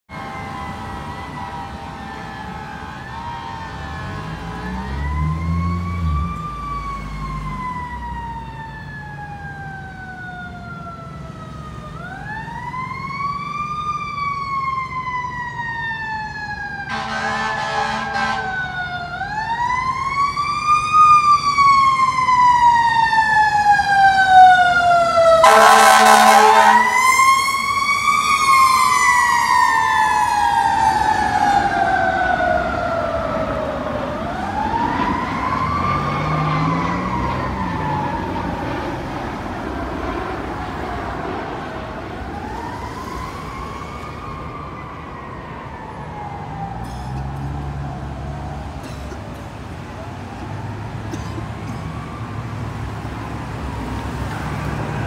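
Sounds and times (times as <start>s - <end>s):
fire engine horn blasts: 0.1s - 4.5s, 16.8s - 18.8s, 25.3s - 27.7s
fire engine siren wailing: 0.1s - 55.0s.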